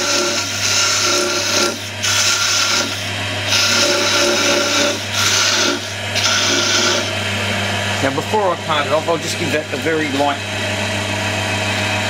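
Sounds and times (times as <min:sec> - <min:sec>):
chisel scraping wood: 0:00.0 - 0:07.2
wood lathe humming: 0:00.0 - 0:12.0.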